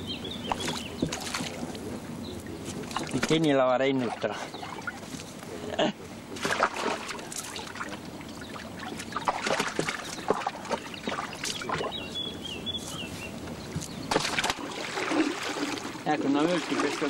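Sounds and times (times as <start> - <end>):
net knocking and rustling on boat: 0.5 - 5.5, 6.3 - 16.0
water pouring off net: 14.1 - 17.0.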